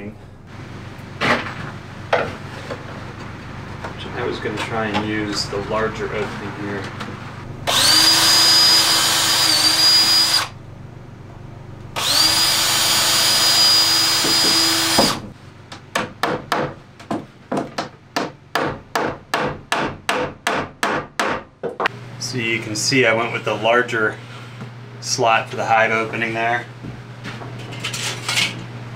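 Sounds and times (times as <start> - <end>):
cordless drill whining: 7.7 - 10.6, 12.0 - 15.2
hammer striking wood: 14.2 - 15.3, 15.9 - 21.9.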